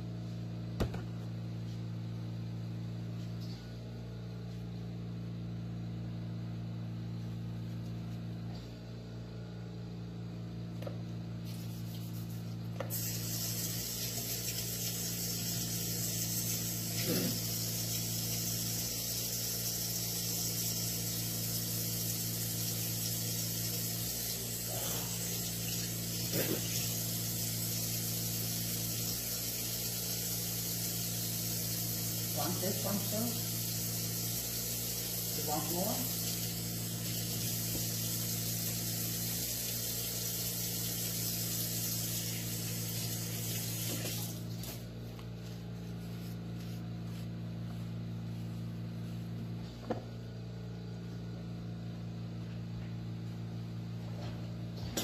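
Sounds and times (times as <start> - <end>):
faucet water running into sink: 12.9 - 44.5.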